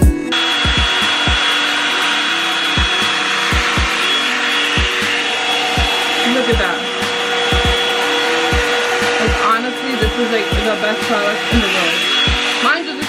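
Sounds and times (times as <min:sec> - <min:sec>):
hot air brush blowing: 0:00.3 - 0:13.0.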